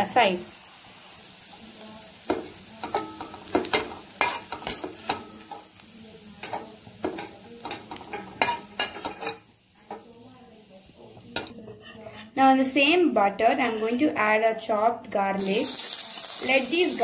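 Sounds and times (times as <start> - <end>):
butter sizzling in a pan: 0.0 - 12.0, 15.4 - 17.0
steel ladle scraping a pan: 2.8 - 5.6, 6.4 - 10.0, 11.2 - 12.4, 13.6 - 14.1.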